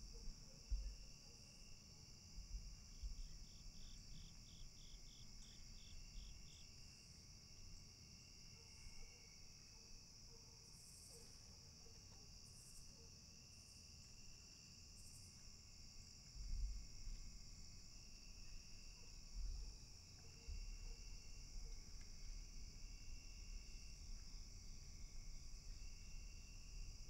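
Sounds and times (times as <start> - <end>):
crickets and insects chirping: 0.0 - 10.1, 12.4 - 27.0.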